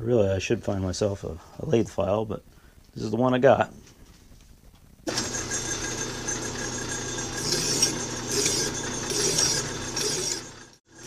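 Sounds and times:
metal lathe humming: 0:05.1 - 0:11.0
file rasping on metal: 0:07.3 - 0:10.6.

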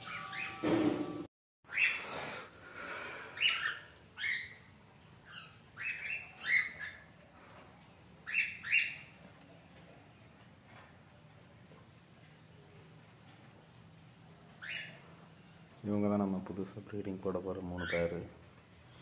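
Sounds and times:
cockatiels calling: 0:00.0 - 0:00.6, 0:01.7 - 0:02.0, 0:03.4 - 0:07.1, 0:08.2 - 0:09.1, 0:14.6 - 0:15.0, 0:17.8 - 0:18.3.

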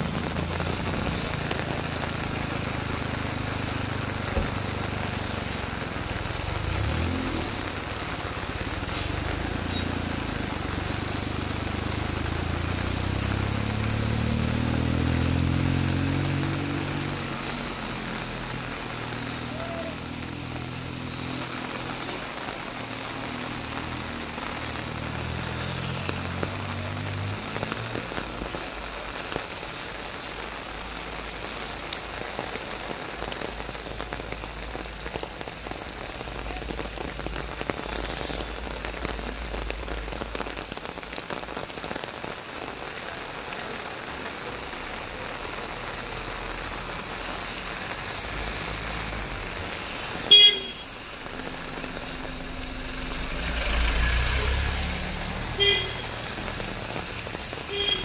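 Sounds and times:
heavy rain on pavement: 0:00.0 - 0:58.0
vehicle passing with rumble: 0:04.9 - 0:28.9, 0:43.3 - 0:58.0
vehicle horn honk: 0:50.3 - 0:50.9, 0:55.6 - 0:56.1, 0:57.7 - 0:58.0.

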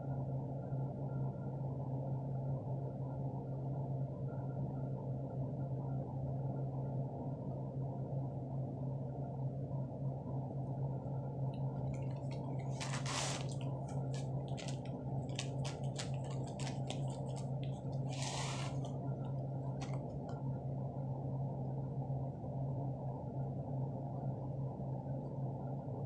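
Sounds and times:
steady low hum: 0:00.0 - 0:26.0
crisp crunching while chewing: 0:12.6 - 0:18.9
powder pouring from cardboard box: 0:12.6 - 0:18.9.

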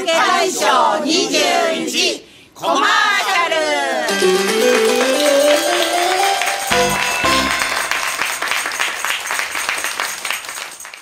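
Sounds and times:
bright show theme music: 0:04.1 - 0:09.4
studio audience applause: 0:04.1 - 0:11.0.

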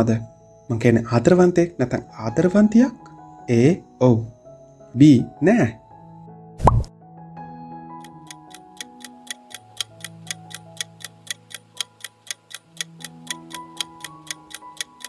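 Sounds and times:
soft background music: 0:00.0 - 0:15.0
clock ticking: 0:08.0 - 0:15.0.

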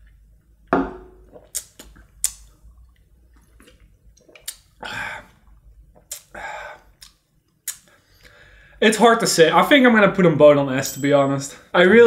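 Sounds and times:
mouth smacks: 0:01.3 - 0:04.8, 0:05.5 - 0:07.9.

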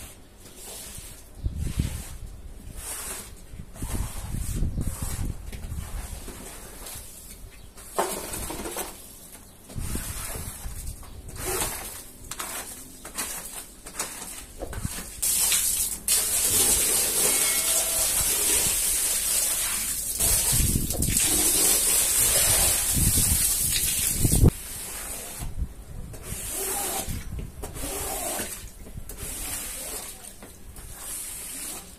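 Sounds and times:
squeegee scraping wet rug: 0:00.0 - 0:31.9
water rushing from hose: 0:15.2 - 0:24.5, 0:28.0 - 0:30.3.

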